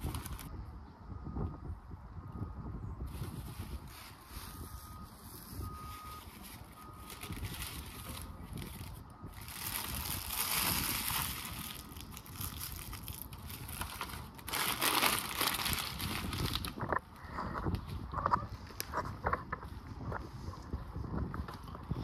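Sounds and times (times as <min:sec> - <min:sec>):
paper crumpling by hand: 0:00.0 - 0:00.5, 0:06.2 - 0:16.9.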